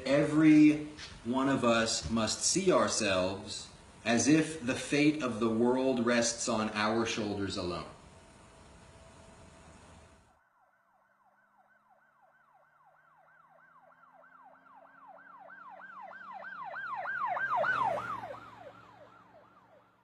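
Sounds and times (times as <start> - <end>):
emergency siren yelping: 10.5 - 20.0.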